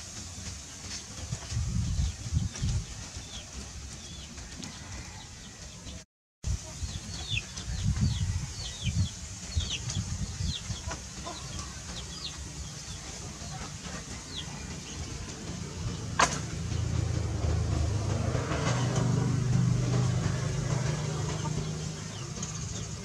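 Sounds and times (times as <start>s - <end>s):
chickens peeping: 0.9s - 16.3s, 20.0s - 23.0s
low rumbling background: 6.5s - 23.0s.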